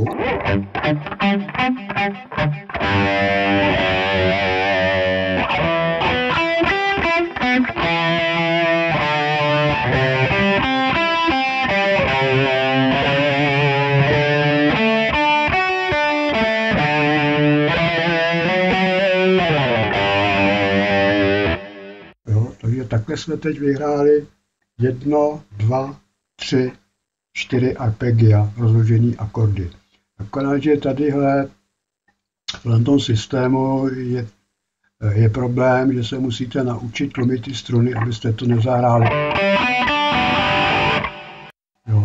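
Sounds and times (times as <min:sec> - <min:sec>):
electric guitar arpeggios: 0:00.0 - 0:22.1, 0:38.0 - 0:41.5.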